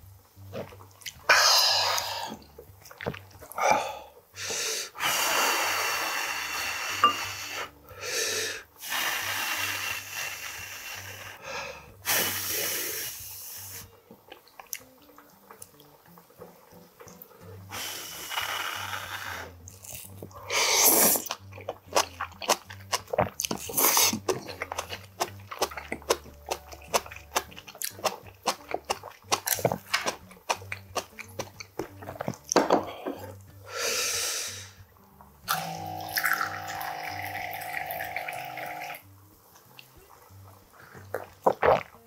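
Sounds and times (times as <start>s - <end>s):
person blowing and slurping: 1.2s - 2.4s, 3.5s - 14.0s, 17.7s - 31.1s, 35.5s - 39.0s, 40.8s - 42.0s
chewing and clicking: 14.3s - 16.2s, 21.2s - 32.6s.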